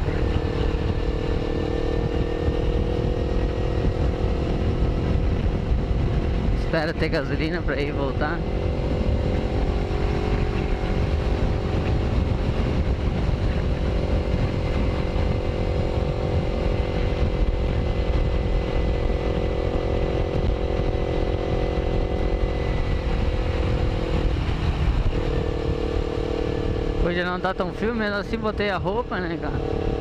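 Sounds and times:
motorcycle engine cruising: 0:00.0 - 0:30.0
wind rumble on microphone: 0:00.0 - 0:30.0.

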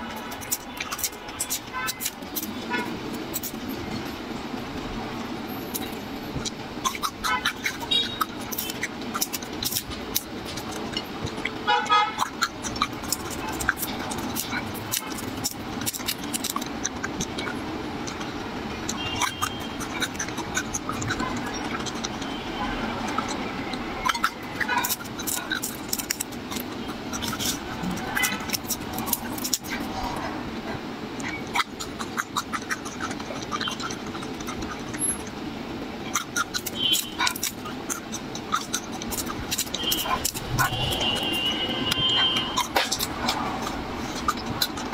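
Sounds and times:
garlic being chewed: 0:00.0 - 0:44.9
garlic skins crackling: 0:12.2 - 0:18.2, 0:23.0 - 0:30.1, 0:36.1 - 0:44.9.

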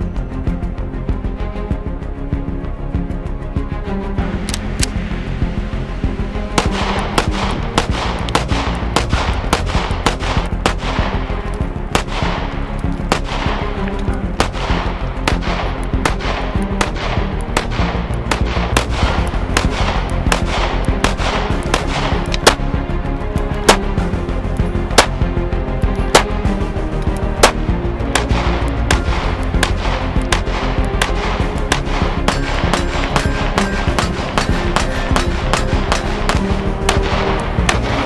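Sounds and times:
background music: 0:00.0 - 0:38.0
pistol shots echoing: 0:06.6 - 0:11.2, 0:11.9 - 0:13.7, 0:14.4 - 0:22.6, 0:23.7 - 0:23.9, 0:24.9 - 0:25.2, 0:26.1 - 0:26.4, 0:27.4 - 0:27.6, 0:28.2 - 0:38.0.

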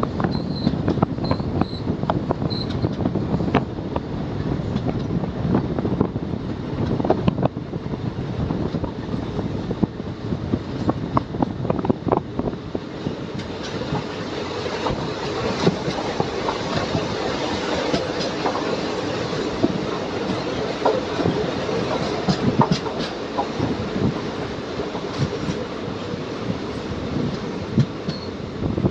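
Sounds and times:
passenger train rumbling: 0:00.0 - 0:28.9
wheels clacking over rail joints: 0:12.9 - 0:28.9.

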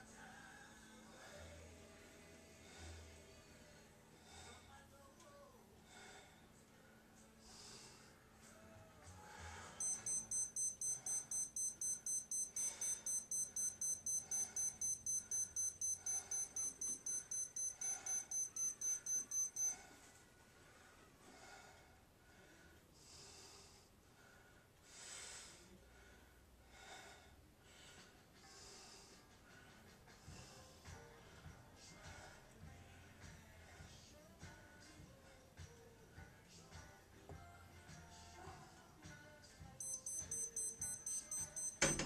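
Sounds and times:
man breathing heavily: 0:05.8 - 0:08.3, 0:09.2 - 0:20.0, 0:20.6 - 0:30.7
high electronic beeping: 0:09.8 - 0:19.8, 0:39.8 - 0:42.0.

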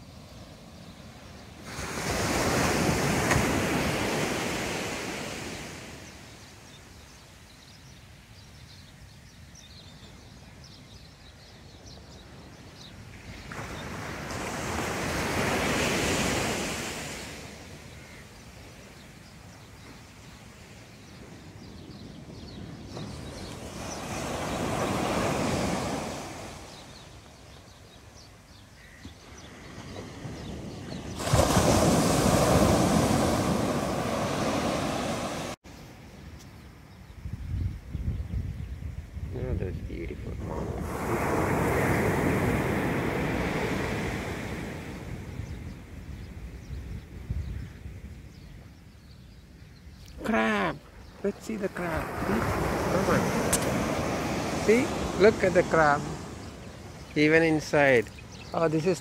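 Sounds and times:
waves breaking on shore: 0:00.0 - 0:06.5, 0:13.0 - 0:21.6, 0:22.3 - 0:36.0, 0:40.4 - 0:46.0, 0:50.1 - 0:59.0.

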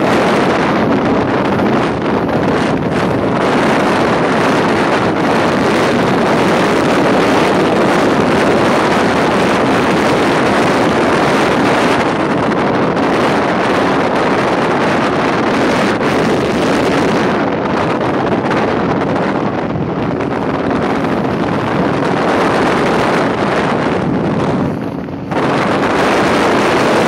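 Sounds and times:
watercraft engine and water noise: 0:00.0 - 0:27.0
wind rushing on microphone: 0:00.0 - 0:27.0.

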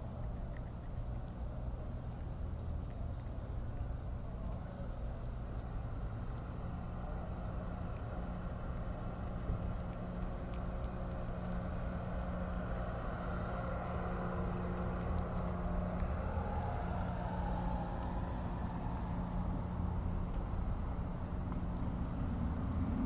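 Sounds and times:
low mechanical hum: 0:00.0 - 0:23.0
faint light ticks: 0:07.9 - 0:12.0.

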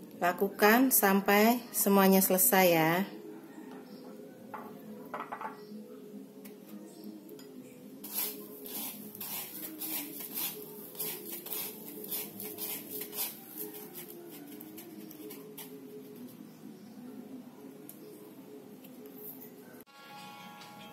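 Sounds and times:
breadcrumbs crackling in a bowl: 0:08.0 - 0:16.4.

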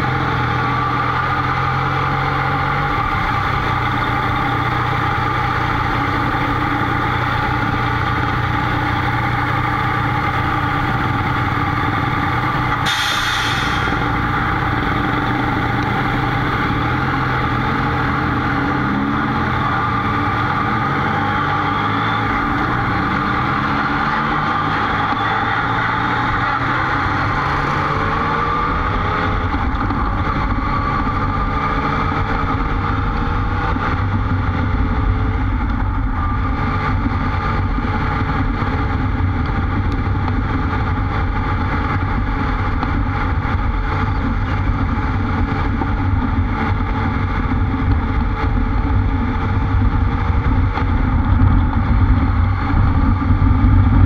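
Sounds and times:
motorcycle engine running: 0:00.0 - 0:54.0
brief hiss: 0:12.9 - 0:14.0.

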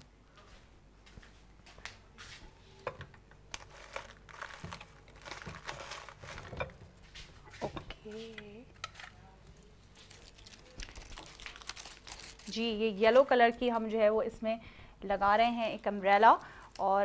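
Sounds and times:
packaging crinkling and rustling: 0:03.5 - 0:07.0, 0:09.8 - 0:13.3.

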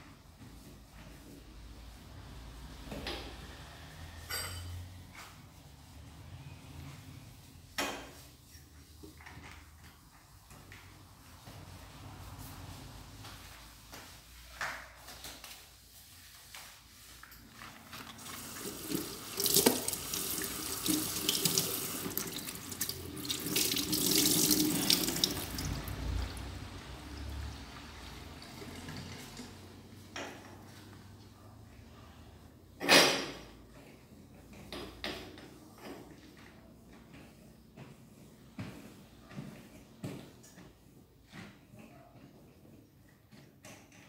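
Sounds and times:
tap water running into sink: 0:18.1 - 0:26.3.

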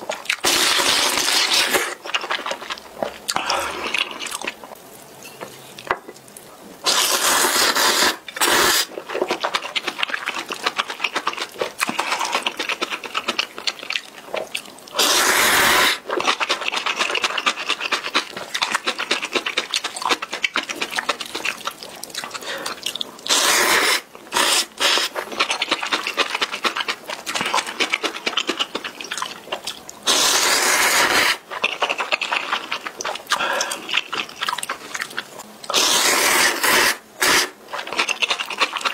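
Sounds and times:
wet chewing and smacking: 0:00.0 - 0:06.5, 0:08.2 - 0:15.0, 0:16.0 - 0:23.4, 0:24.0 - 0:35.9, 0:37.3 - 0:38.9
slurping noodles: 0:00.4 - 0:02.6, 0:06.8 - 0:09.9, 0:14.9 - 0:21.2, 0:22.3 - 0:29.1, 0:30.0 - 0:34.2, 0:35.7 - 0:38.9.

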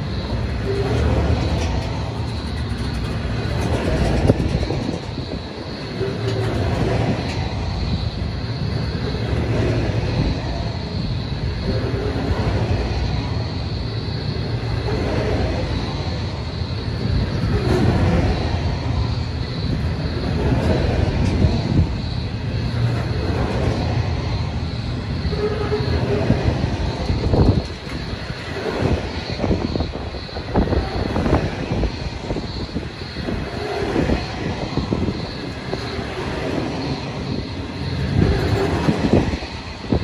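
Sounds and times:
train wagons rumbling on rails: 0:00.0 - 0:40.0.

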